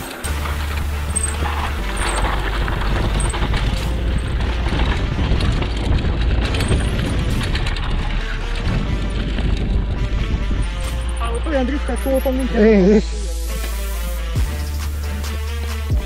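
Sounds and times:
mountain bike rolling and rattling: 0:00.0 - 0:12.7
wind rumbling on microphone: 0:00.3 - 0:11.7.

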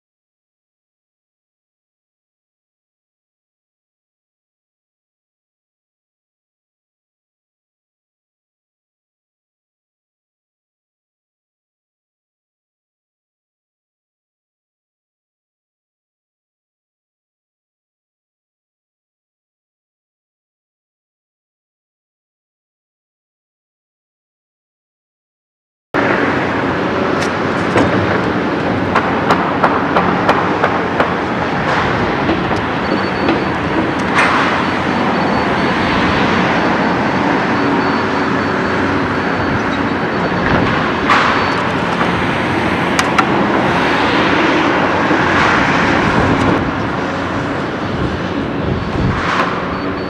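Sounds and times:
excavator diesel engine running: 0:26.0 - 0:50.0.

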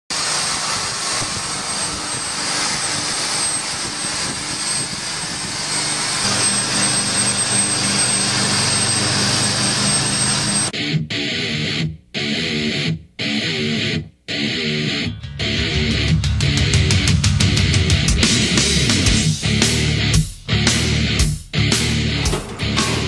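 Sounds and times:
machinery hiss and drone: 0:00.1 - 0:10.7.

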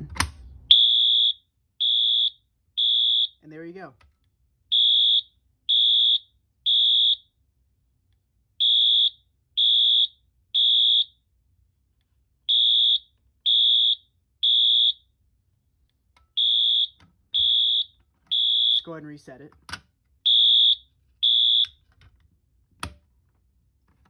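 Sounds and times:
fire alarm beeping: 0:00.7 - 0:03.4, 0:04.7 - 0:07.3, 0:08.6 - 0:11.2, 0:12.5 - 0:15.1, 0:16.3 - 0:19.0, 0:20.2 - 0:21.8.

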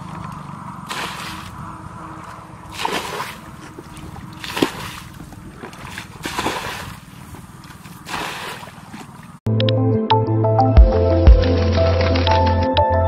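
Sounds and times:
water splashing from bucket: 0:00.0 - 0:01.6, 0:02.7 - 0:07.1, 0:07.8 - 0:09.1.

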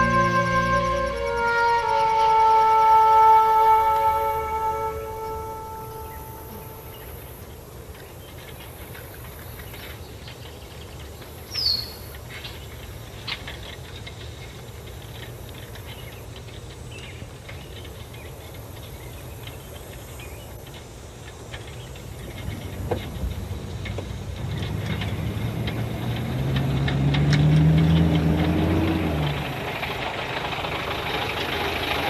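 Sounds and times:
low steady rumble: 0:00.0 - 0:09.0, 0:11.8 - 0:32.0
faint ticks: 0:05.4 - 0:29.4
falling bird chirp: 0:10.6 - 0:12.7.

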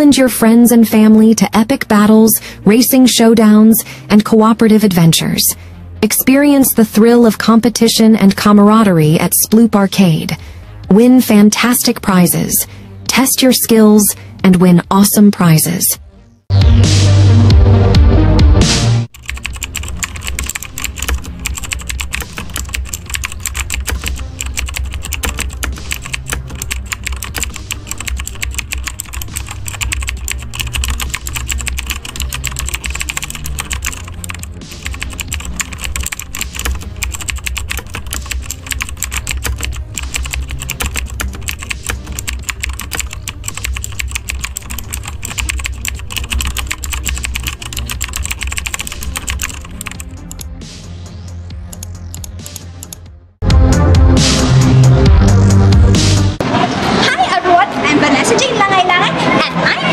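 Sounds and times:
keyboard typing: 0:19.1 - 0:50.6, 0:51.6 - 0:53.0.

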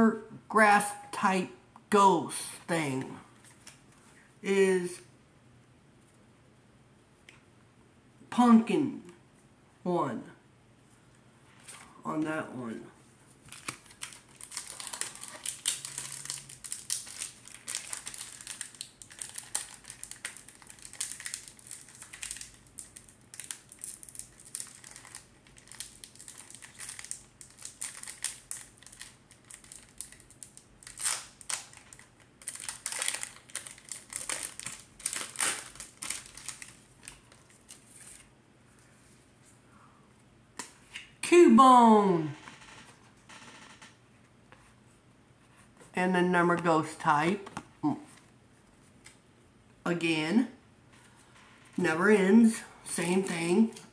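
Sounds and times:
card pack wrapper crinkling: 0:13.4 - 0:38.3.

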